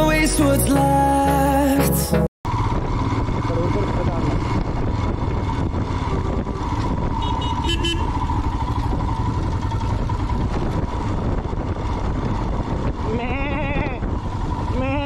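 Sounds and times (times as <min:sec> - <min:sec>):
motorcycle engine and wind rumble: 0:02.5 - 0:15.0
vehicle horn toot: 0:07.1 - 0:08.2.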